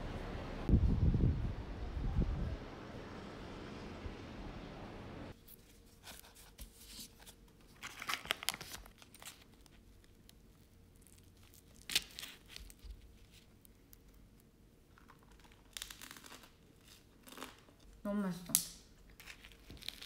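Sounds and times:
outdoor background noise: 0.0s - 20.0s
paper wrapper crinkling: 5.4s - 17.8s, 19.1s - 20.0s.

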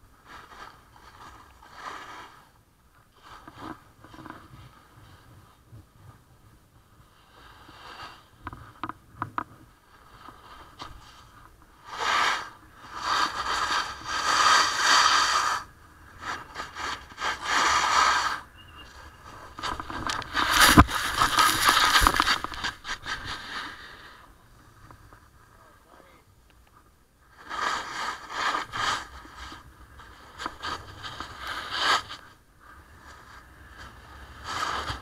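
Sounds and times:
snowboard scraping on snow: 0.2s - 2.6s, 9.9s - 24.3s, 27.3s - 35.0s.

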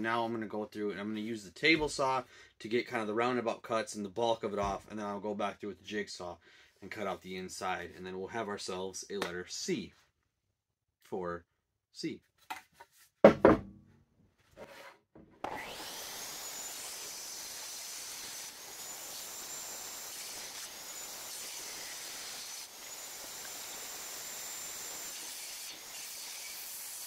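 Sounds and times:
saw cutting wooden block: 14.6s - 27.0s
table saw whining: 15.3s - 27.0s.

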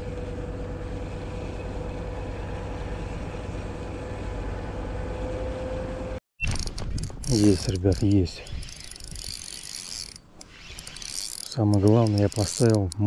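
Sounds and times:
low engine drone: 0.0s - 6.2s.

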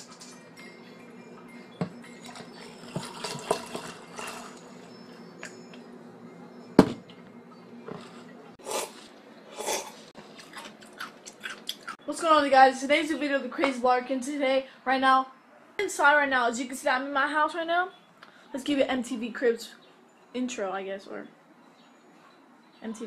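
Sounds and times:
cola pouring over ice: 2.2s - 4.8s.

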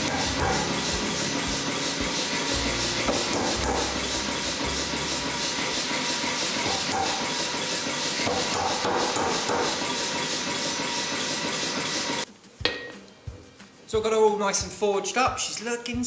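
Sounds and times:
power hammer hiss and clatter: 0.0s - 12.2s
hammer dies striking metal: 2.0s - 5.0s.

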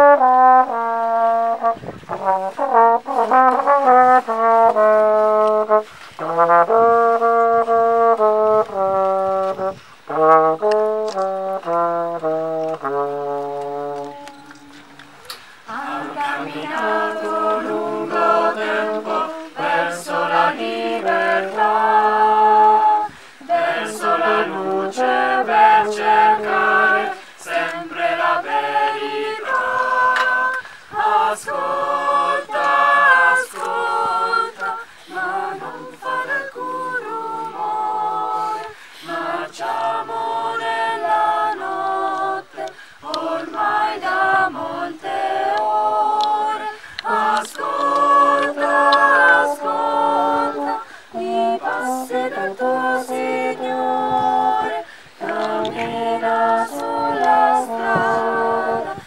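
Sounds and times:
choir singing a cappella: 13.6s - 59.0s.

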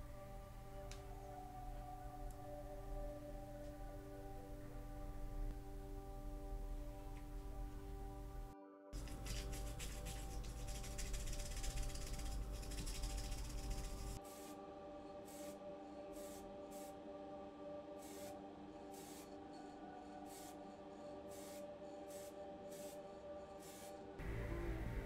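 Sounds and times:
aerosol can spraying hiss: 13.3s - 14.6s, 15.2s - 15.6s, 16.2s - 17.0s, 18.0s - 19.3s, 20.2s - 20.6s, 21.3s - 24.0s.

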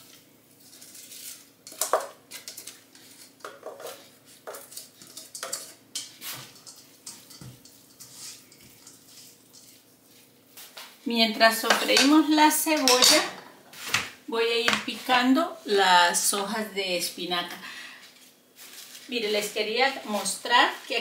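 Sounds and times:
spatula scraping bowl and pan: 0.0s - 10.8s.

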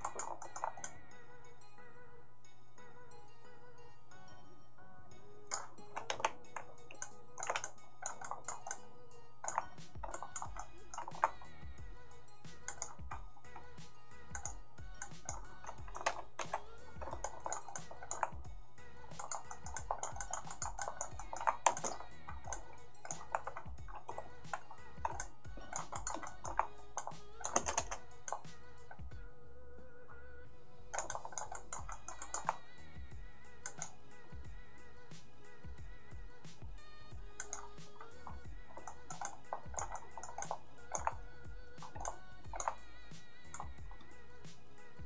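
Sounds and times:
keyboard and mouse clicks: 0.0s - 1.0s, 5.5s - 11.7s, 12.4s - 29.1s, 30.9s - 34.1s, 36.5s - 44.6s
quiet background music: 0.0s - 45.0s.

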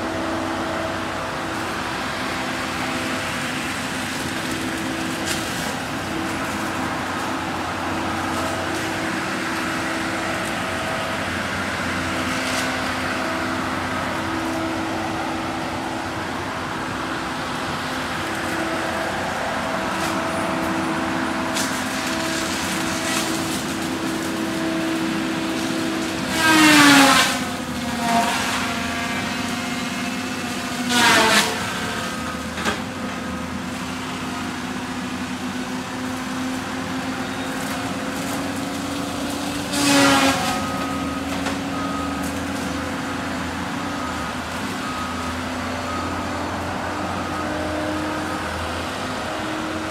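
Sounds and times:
feller buncher engine whine: 0.0s - 49.9s
saw cutting wood: 17.7s - 32.9s, 36.8s - 44.1s.

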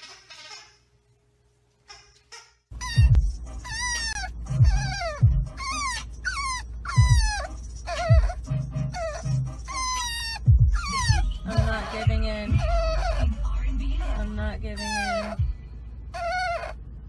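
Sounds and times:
puppy whining: 2.7s - 15.5s, 16.1s - 16.9s
moving car rumble: 2.7s - 17.0s.

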